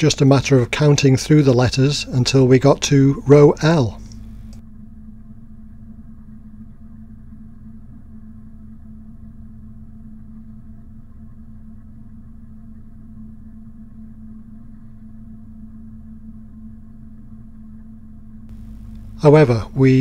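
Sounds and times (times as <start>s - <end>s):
boat engine running: 1.8s - 4.6s, 18.5s - 20.0s.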